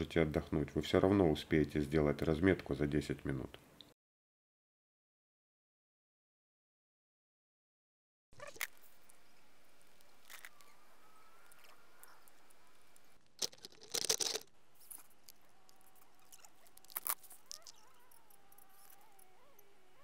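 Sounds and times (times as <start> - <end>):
outdoor background hiss: 8.6 - 13.4.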